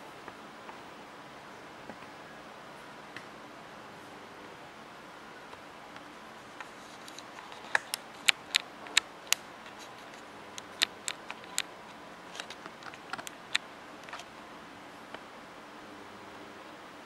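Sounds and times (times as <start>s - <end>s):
keyboard keys clicking: 6.6s - 14.2s.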